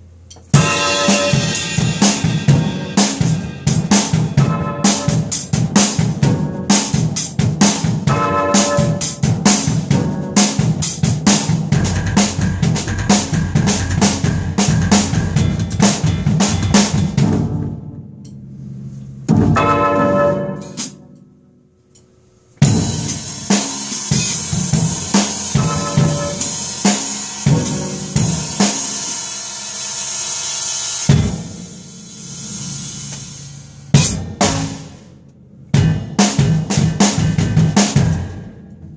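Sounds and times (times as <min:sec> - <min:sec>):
drum kit beat: 0:00.0 - 0:18.4, 0:20.6 - 0:21.0, 0:22.6 - 0:38.9
hissing cymbal wash: 0:00.6 - 0:06.2, 0:22.8 - 0:35.1.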